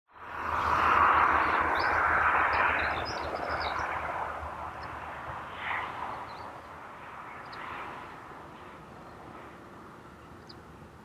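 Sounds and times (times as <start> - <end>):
broad rushing noise: 0.2 - 11.0
small birds chirping: 6.1 - 6.7, 10.2 - 10.7.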